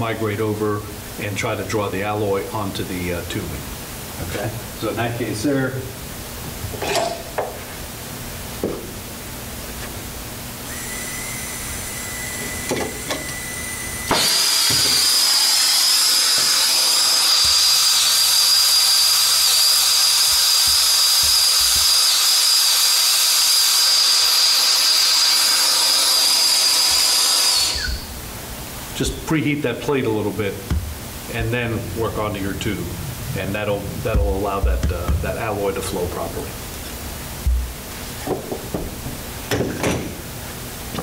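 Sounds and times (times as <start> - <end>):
torch hissing and whistling: 10.7 - 28.2.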